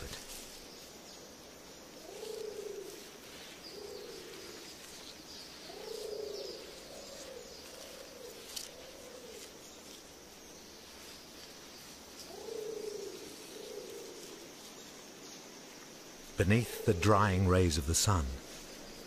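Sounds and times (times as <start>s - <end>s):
pigeon cooing: 5.7s - 9.5s, 12.3s - 14.4s.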